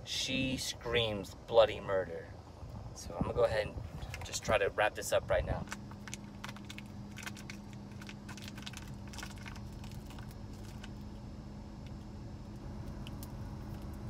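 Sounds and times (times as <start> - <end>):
steady low hum: 0.0 - 14.0
wrapping paper crackling: 5.7 - 11.1.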